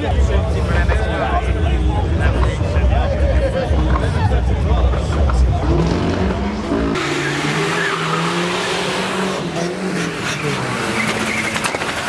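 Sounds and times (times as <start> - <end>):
car engine revving: 0.3 - 12.0.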